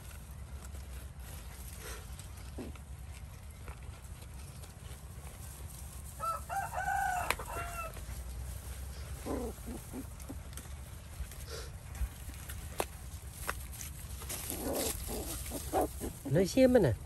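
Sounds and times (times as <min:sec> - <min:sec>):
rooster crowing: 0:06.2 - 0:08.0.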